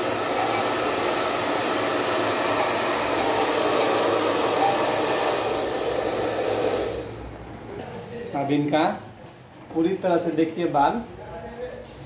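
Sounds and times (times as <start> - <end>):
hair dryer running: 0.0 - 7.3.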